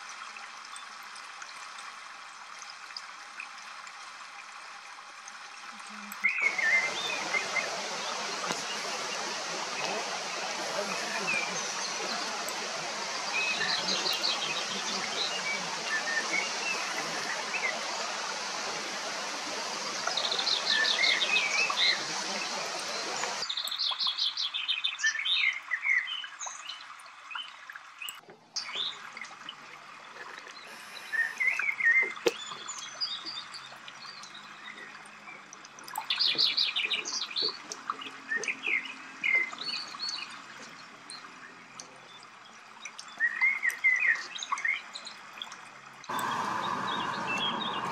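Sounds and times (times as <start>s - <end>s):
running water rushing: 0.0s - 47.9s
songbirds chirping and trilling: 6.2s - 18.5s, 19.4s - 29.0s, 46.1s - 47.9s.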